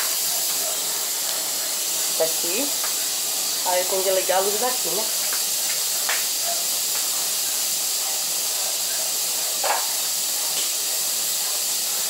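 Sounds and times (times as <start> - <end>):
steam hissing from pressure cooker: 0.0 - 12.0.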